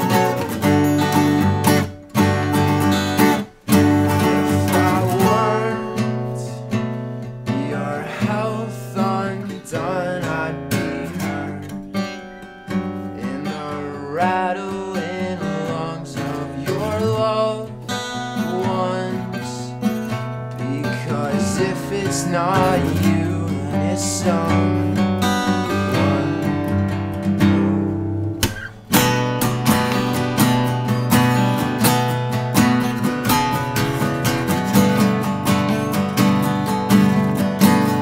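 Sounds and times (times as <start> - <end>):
acoustic guitars playing: 0.0 - 38.0
man singing: 4.1 - 6.8, 7.4 - 12.3, 13.1 - 28.2.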